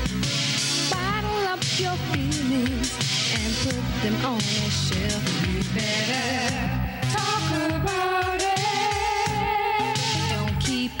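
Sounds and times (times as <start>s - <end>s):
pop-soul band with drum beat: 0.0s - 11.0s.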